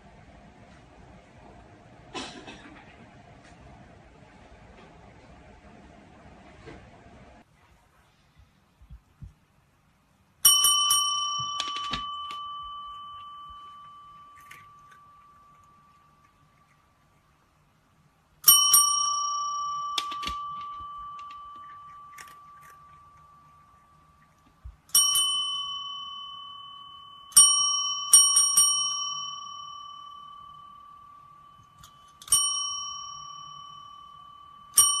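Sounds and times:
small metal bell ringing: 10.4s - 16.6s, 18.4s - 24.3s, 24.9s - 35.0s.

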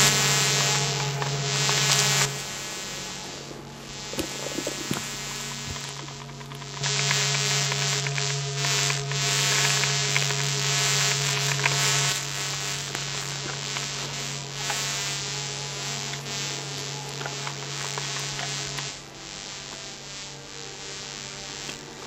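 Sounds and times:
low electrical hum: 0.0s - 22.0s
static hiss: 0.0s - 22.0s
faint clicks: 4.1s - 14.9s, 16.0s - 19.0s.

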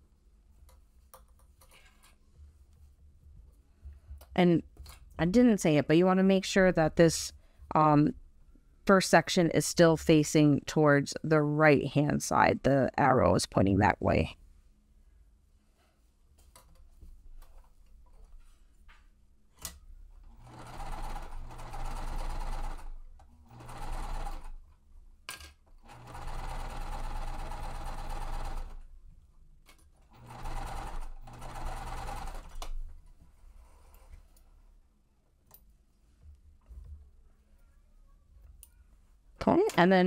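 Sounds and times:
sewing machine stitching: 20.2s - 24.6s, 25.8s - 28.8s, 30.1s - 32.7s.

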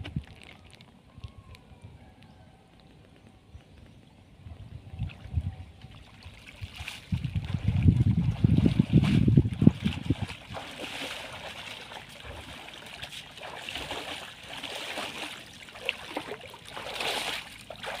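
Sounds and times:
water sloshing and splashing: 5.0s - 18.0s
water trickling: 5.8s - 18.0s.

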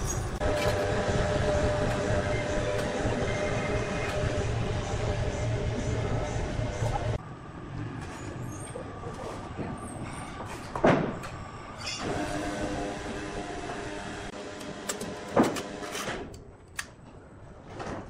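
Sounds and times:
steady machine hum: 0.2s - 10.4s, 11.1s - 16.0s
sawmill machinery running: 0.4s - 7.2s, 12.0s - 16.0s.

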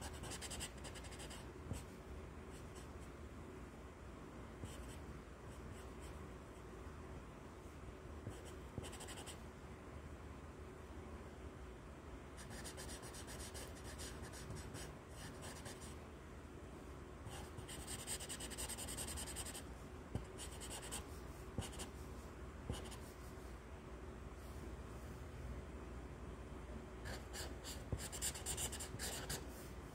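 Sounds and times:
marker scratching on paper: 0.0s - 1.9s, 8.3s - 9.4s, 17.3s - 19.6s, 20.2s - 21.9s, 22.7s - 23.2s, 27.0s - 29.5s.

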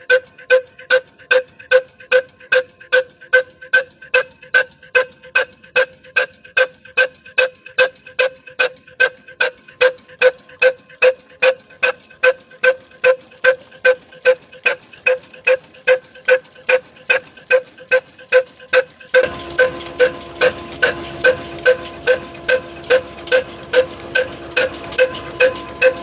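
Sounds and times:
slow diesel engine exhaust beats: 19.1s - 26.0s.

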